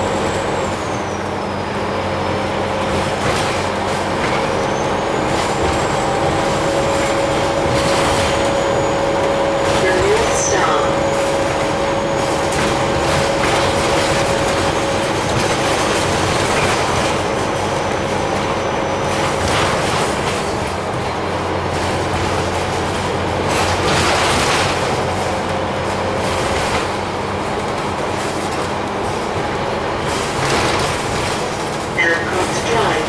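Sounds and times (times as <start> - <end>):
bus body rattling: 0.0 - 33.0
bus engine and road noise: 0.0 - 33.0
steady whine: 5.0 - 16.4.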